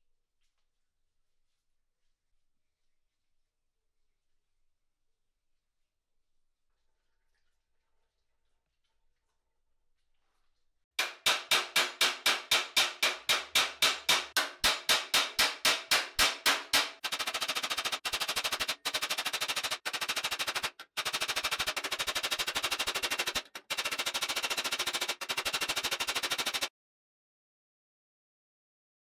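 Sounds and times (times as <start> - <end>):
rapid rattle of hammer blows: 11.0 - 26.7.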